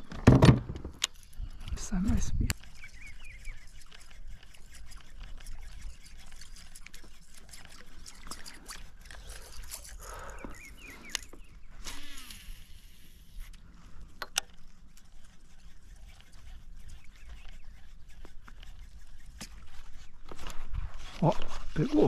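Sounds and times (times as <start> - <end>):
water trickling and lapping: 1.1 - 22.0.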